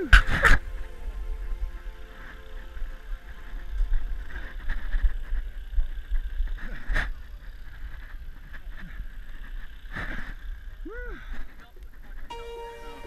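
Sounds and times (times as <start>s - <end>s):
camera rumbling and scuffing: 3.8s - 10.8s.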